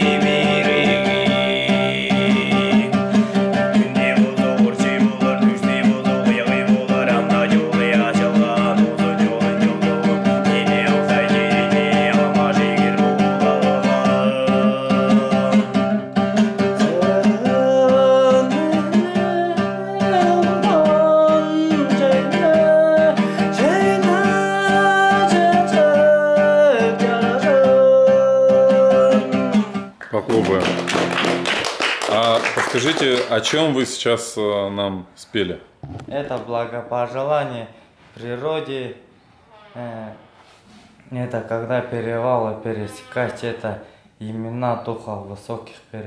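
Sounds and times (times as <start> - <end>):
throat singing: 0.0 - 30.6
strummed string instrument: 0.0 - 31.6.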